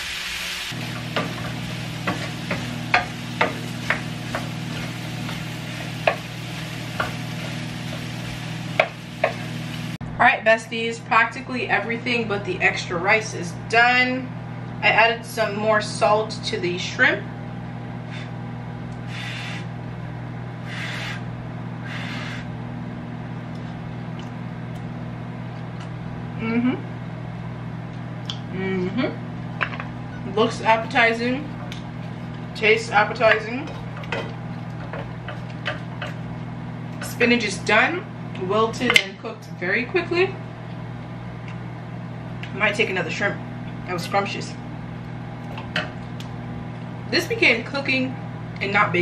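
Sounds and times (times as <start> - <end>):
shrimp sizzling in a frying pan: 0.0 - 10.0
microwave oven humming: 0.0 - 49.0
low hum: 0.6 - 10.6
wooden spoon knocking on pan: 1.0 - 4.6
short hissing noises: 19.0 - 19.7, 20.6 - 22.5.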